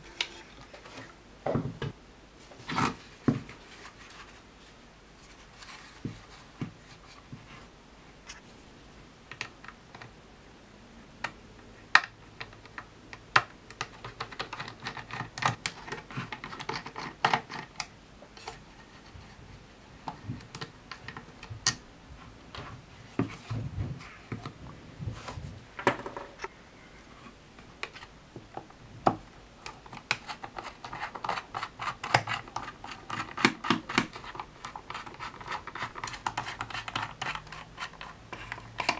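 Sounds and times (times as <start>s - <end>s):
plastic clicking and scraping: 12.0s - 18.6s, 27.8s - 38.9s.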